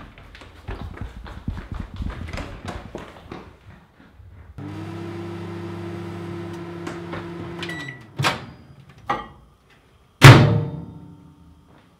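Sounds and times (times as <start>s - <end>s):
microwave oven humming: 4.6s - 8.8s
microwave beep: 7.4s - 8.8s.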